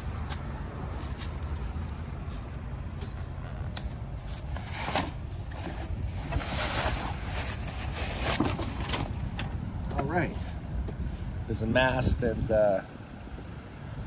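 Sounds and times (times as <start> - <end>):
wind rumbling on microphone: 6.1 - 14.0.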